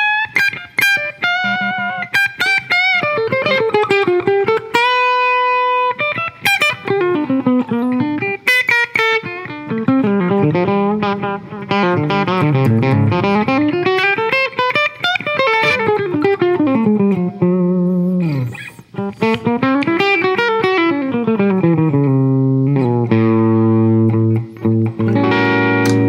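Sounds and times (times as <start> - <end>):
electric guitar single-note runs: 21.0 - 26.0.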